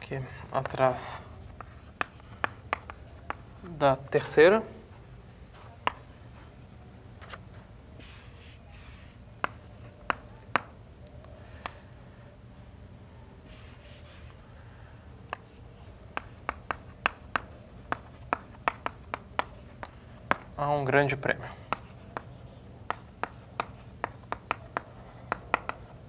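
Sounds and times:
chalk tapping on board: 0.6s - 3.7s, 5.6s - 6.8s, 8.0s - 10.7s, 11.6s - 11.8s, 15.3s - 20.6s, 21.7s - 26.0s
chalk scratching on blackboard: 0.6s - 3.8s, 5.5s - 6.9s, 8.0s - 10.7s, 13.5s - 14.4s, 15.3s - 20.5s, 21.7s - 26.0s.

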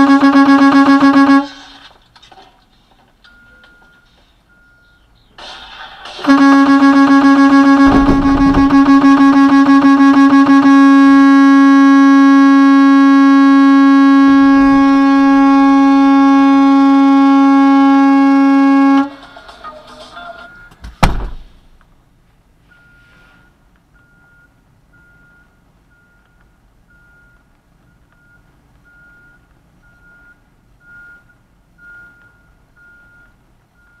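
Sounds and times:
vehicle horn honking: 0.0s - 1.6s, 6.2s - 19.1s
loud thump: 7.7s - 9.6s, 14.2s - 16.4s, 21.0s - 21.5s.

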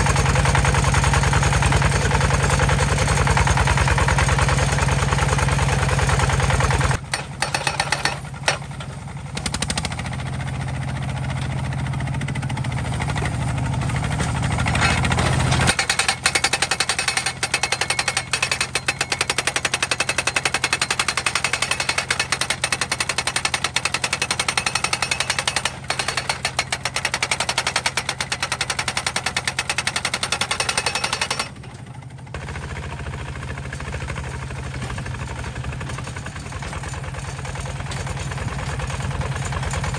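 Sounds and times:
diesel engine running: 0.0s - 39.9s
hammer pounding steel post: 7.0s - 8.8s, 14.2s - 31.6s.

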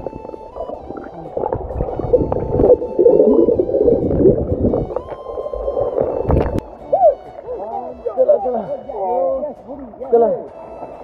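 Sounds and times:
water splash: 0.0s - 6.8s
underwater bubbling and gurgling: 0.0s - 7.8s.

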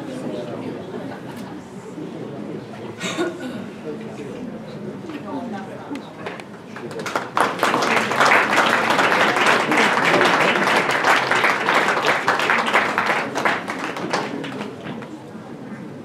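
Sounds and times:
audience applauding: 6.7s - 14.9s.

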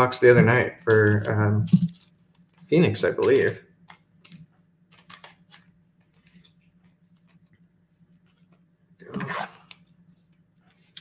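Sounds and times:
fingers handling a card: 0.8s - 7.5s.

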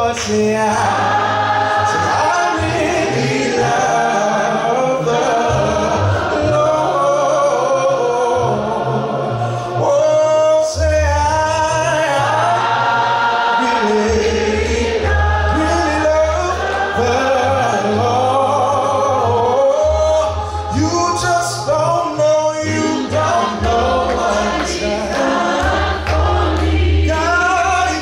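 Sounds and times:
gospel choir singing: 0.0s - 28.0s
steady bass line: 13.9s - 28.0s.

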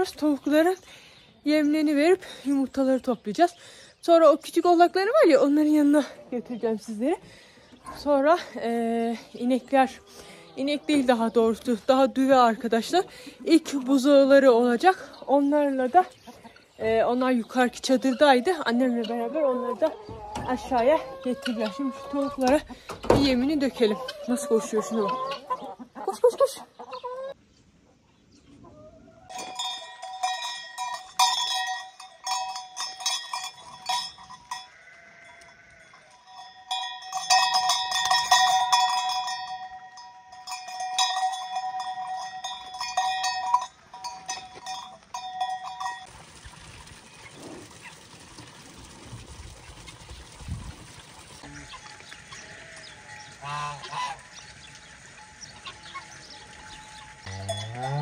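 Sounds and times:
farmyard sounds: 0.0s - 58.0s
metal animal bells clanking: 29.3s - 46.2s, 51.4s - 58.0s.

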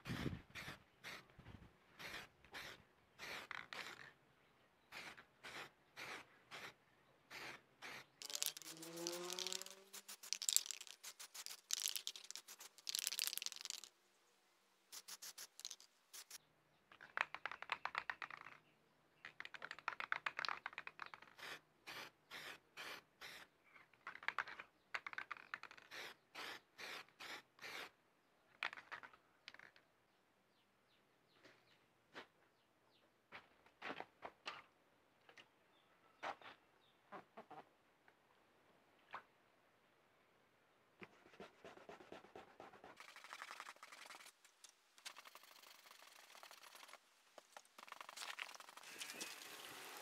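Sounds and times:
spray paint can hissing: 4.9s - 6.7s, 7.3s - 13.9s, 14.9s - 16.4s, 20.9s - 23.4s, 25.4s - 27.9s, 43.0s - 50.0s
spray can mixing ball rattling: 7.8s - 13.9s, 14.9s - 16.4s, 43.0s - 50.0s.

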